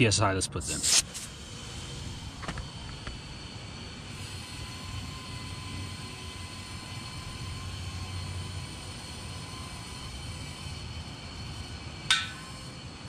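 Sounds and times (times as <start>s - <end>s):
compressed air hissing into tire: 0.7s - 5.0s.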